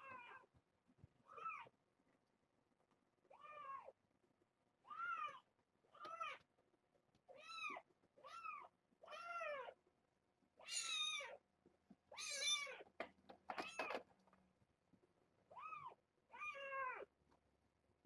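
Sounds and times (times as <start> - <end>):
kittens meowing: 10.6 - 11.4, 12.1 - 12.9.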